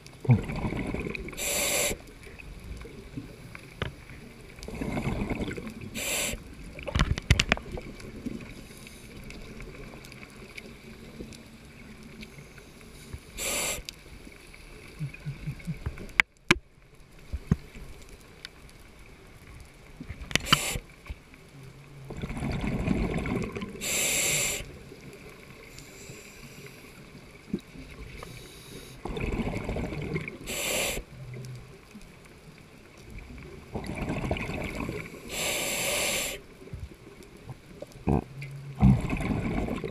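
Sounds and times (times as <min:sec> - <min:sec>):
exhaled bubbles rumbling: 0:00.0 - 0:01.5, 0:04.1 - 0:12.2, 0:21.7 - 0:23.9, 0:29.0 - 0:30.5, 0:33.0 - 0:35.3, 0:36.7 - 0:39.9
regulator hissing inhales: 0:01.4 - 0:02.1, 0:05.9 - 0:06.5, 0:12.4 - 0:13.9, 0:20.4 - 0:20.9, 0:23.8 - 0:24.8, 0:25.6 - 0:27.0, 0:28.2 - 0:29.0, 0:30.4 - 0:31.1, 0:35.1 - 0:36.5.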